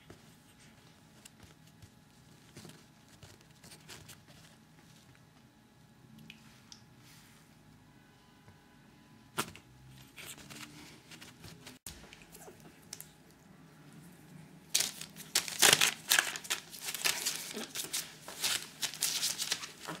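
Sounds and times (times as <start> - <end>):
newspaper crinkling and rustling: 9.4 - 12.0, 14.7 - 20.0.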